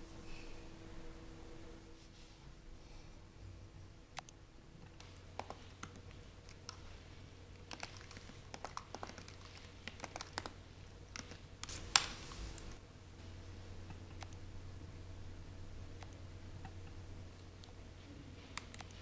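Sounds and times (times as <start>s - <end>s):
laptop keyboard typing: 4.1s - 12.1s, 18.4s - 19.0s.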